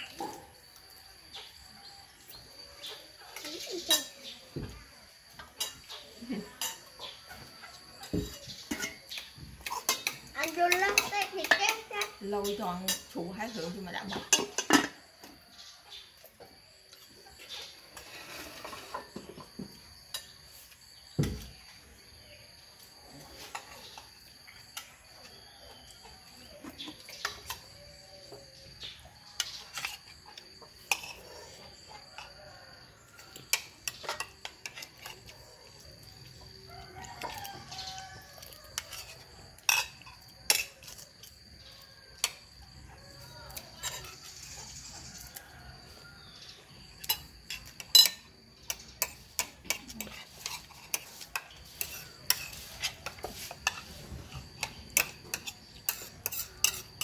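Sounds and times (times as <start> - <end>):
metal spoon scraping a bowl: 8.0 - 15.1, 17.4 - 19.3, 29.3 - 32.5, 37.2 - 41.4, 43.5 - 45.4, 47.0 - 57.0
rooster crowing: 36.5 - 39.2, 42.9 - 46.5.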